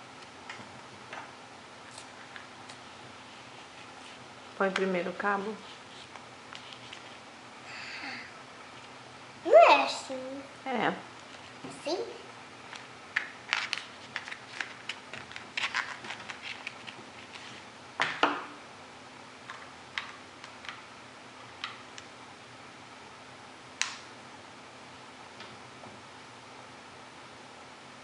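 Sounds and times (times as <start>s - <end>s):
plastic rustle: 13.5s - 17.7s.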